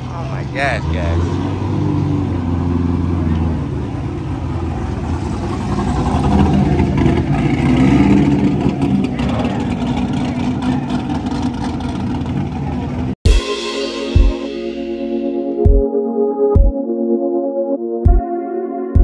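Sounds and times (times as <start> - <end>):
car engine through exhaust: 0.0 - 13.2.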